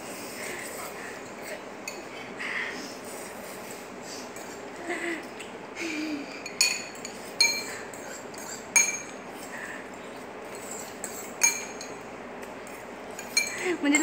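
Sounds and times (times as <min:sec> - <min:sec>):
cutlery clinking on ceramic bowls: 0:06.2 - 0:09.5, 0:10.5 - 0:14.0.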